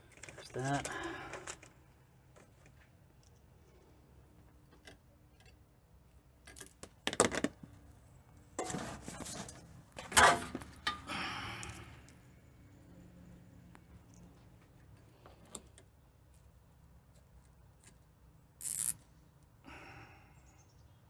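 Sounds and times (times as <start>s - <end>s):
zip ties ratcheting: 18.6s - 19.1s.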